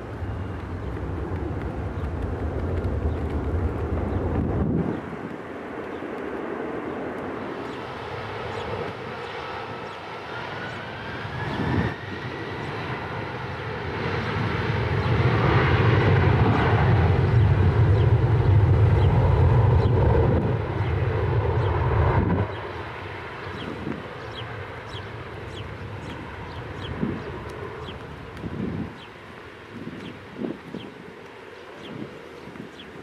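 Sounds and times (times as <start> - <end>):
jet engine whine: 0.0 - 33.0
jet engines rumbling: 0.0 - 33.0.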